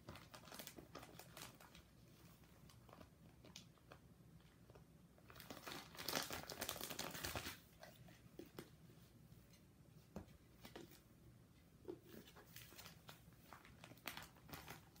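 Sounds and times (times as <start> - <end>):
plastic pages crinkling: 0.0 - 4.0, 5.2 - 7.9, 12.1 - 15.0.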